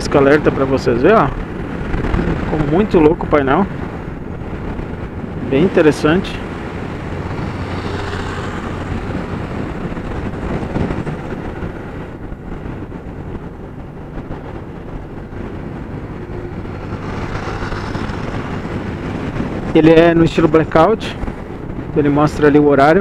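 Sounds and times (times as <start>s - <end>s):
wind and road noise: 0.0s - 23.0s
scooter engine hum: 3.7s - 20.3s.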